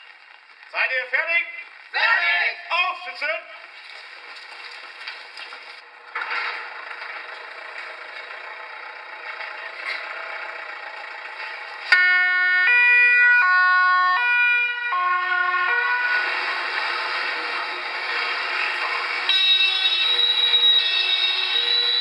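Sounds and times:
two-tone ambulance siren: 11.9s - 22.0s.

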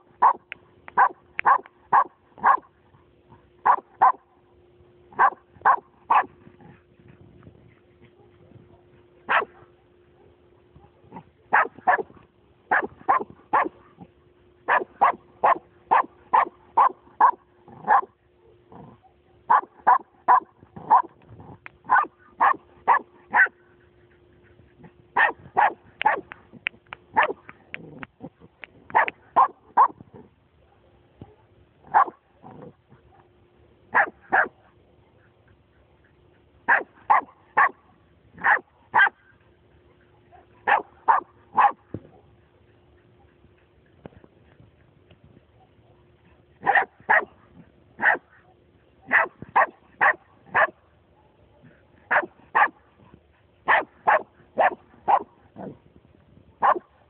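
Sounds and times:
dog barking sharply: 1.0s - 2.7s, 9.3s - 9.6s, 28.9s - 29.9s, 46.6s - 47.3s, 49.1s - 50.7s, 53.7s - 55.3s.

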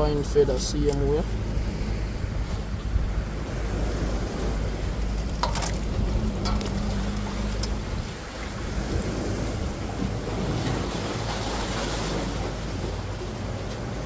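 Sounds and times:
sea surf: 0.0s - 14.0s
wind on microphone: 0.0s - 14.0s
water splashing in steel bowl: 5.3s - 7.8s.

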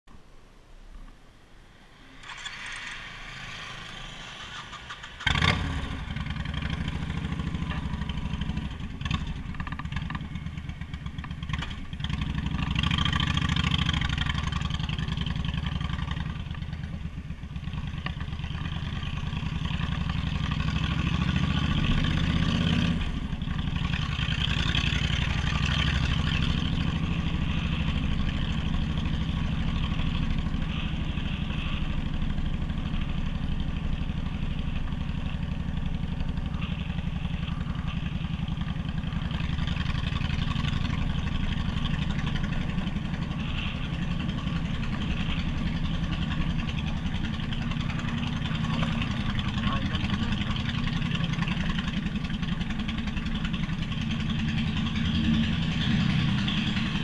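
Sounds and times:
motorcycle engine starting and revving: 1.8s - 57.0s.

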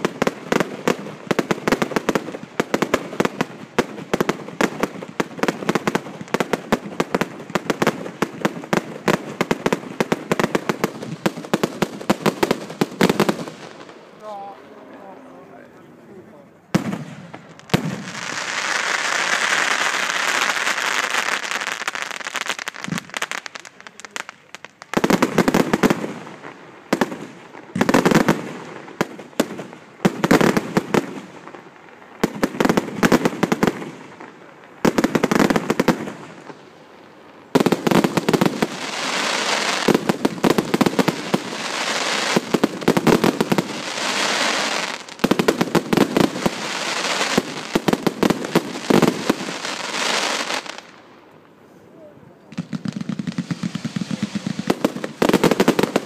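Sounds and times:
fireworks bangs and crackles: 0.0s - 14.6s, 16.7s - 51.3s, 52.4s - 56.0s.

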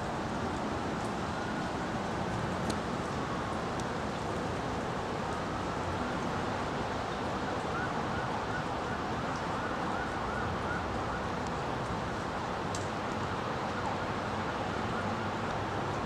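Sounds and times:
traffic noise: 0.0s - 16.0s
distant siren yelping: 7.4s - 11.4s.

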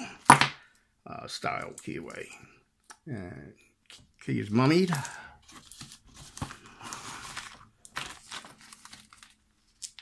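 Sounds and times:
plastic bags crinkling: 4.8s - 10.0s.

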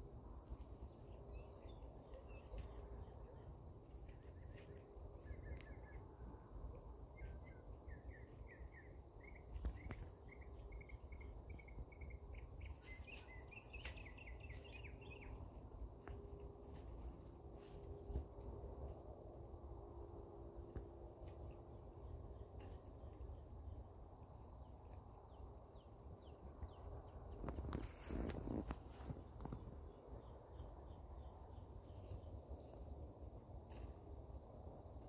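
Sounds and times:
bird chirping: 7.1s - 15.6s.

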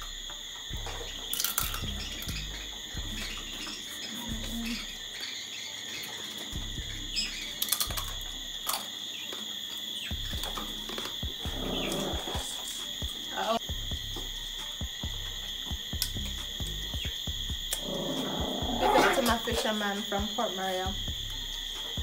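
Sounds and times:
crickets chirring: 0.0s - 22.0s
clicks and smacks of eating: 1.3s - 2.4s, 7.6s - 9.4s.

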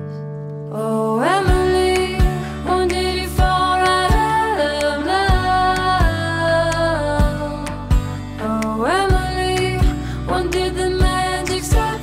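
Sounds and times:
steady bass: 1.4s - 12.0s.

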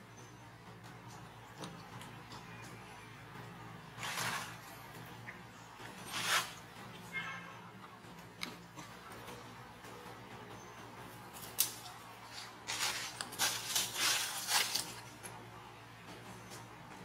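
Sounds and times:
leaves and twig rustling: 11.3s - 15.1s.

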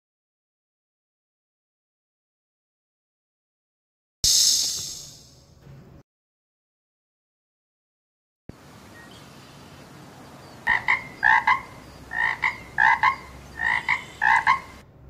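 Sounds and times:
faint steady hiss: 8.5s - 14.8s
toad croaking: 10.6s - 14.8s.

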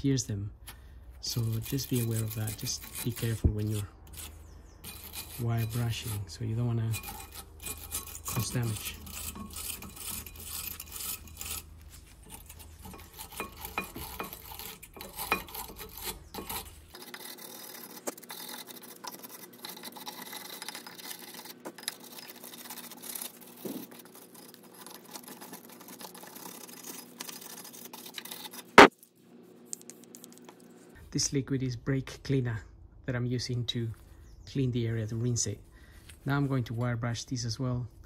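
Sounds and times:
wire brush rasping on metal: 1.2s - 28.9s.

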